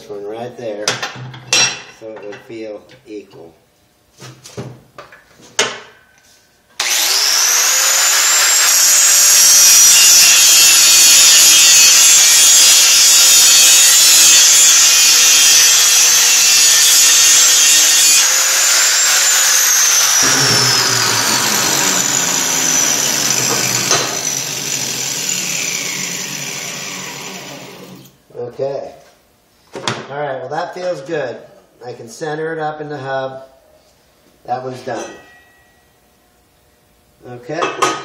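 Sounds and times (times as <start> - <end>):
angle grinder grinding steel: 6.8 - 28.1
grinder winding down: 6.8 - 28.2.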